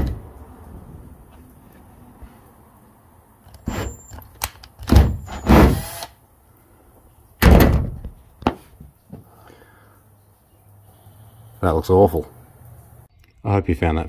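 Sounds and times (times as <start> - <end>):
heavy bangs on car sheet-metal roof: 0.0 - 0.2, 4.9 - 5.8, 7.4 - 8.6.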